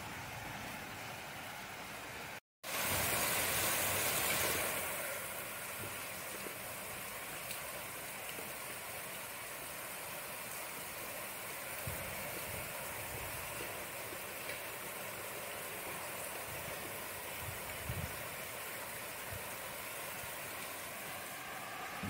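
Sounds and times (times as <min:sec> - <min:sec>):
rain falling: 0:00.0 - 0:22.0.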